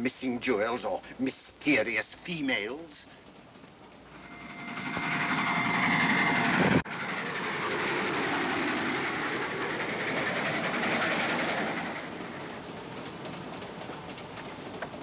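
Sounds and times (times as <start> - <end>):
train rushing rumble: 0.0 - 15.0
steady high tone: 4.1 - 7.8.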